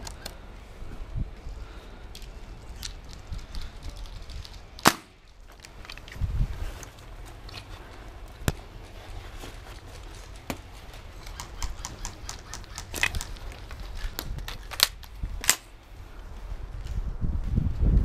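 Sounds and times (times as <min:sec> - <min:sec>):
footsteps and movement rumble: 0:00.0 - 0:18.0
airsoft gun cracks: 0:04.8 - 0:05.3, 0:14.2 - 0:15.7.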